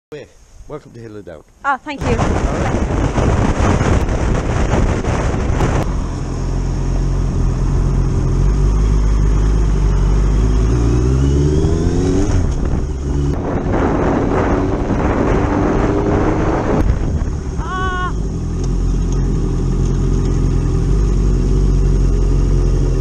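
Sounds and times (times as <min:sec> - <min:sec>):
wind rush over microphone: 0:02.0 - 0:06.5, 0:11.5 - 0:18.1
motorcycle engine accelerating: 0:02.0 - 0:23.0.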